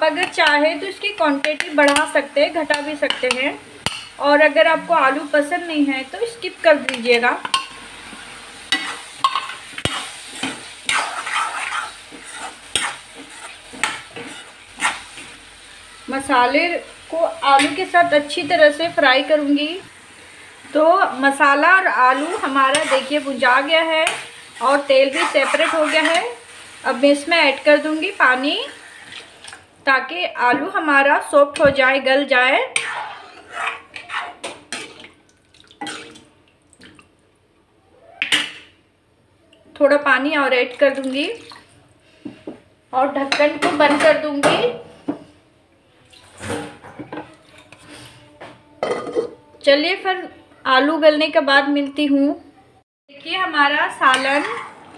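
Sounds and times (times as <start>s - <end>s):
light frying sizzle: 0.0s - 36.8s
spatula scraping a pan: 6.9s - 16.0s, 21.8s - 26.9s, 27.5s - 29.6s, 32.6s - 35.1s, 46.3s - 49.4s, 54.0s - 54.9s
water pouring and splashing: 29.0s - 29.7s, 34.9s - 37.1s, 40.7s - 41.8s, 46.0s - 46.7s.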